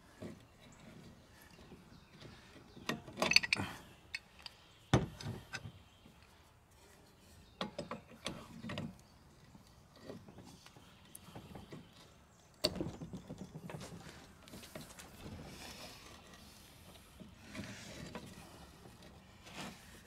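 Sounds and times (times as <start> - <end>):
pipe wrench metal clicks: 3.2 - 4.5.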